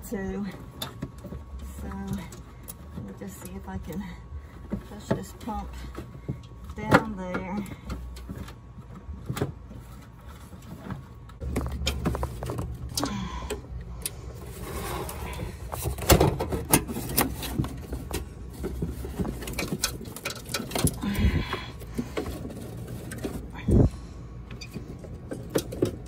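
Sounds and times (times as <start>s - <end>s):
low steady rumble: 0.0s - 26.0s
hard plastic clicking and scraping: 13.9s - 21.2s.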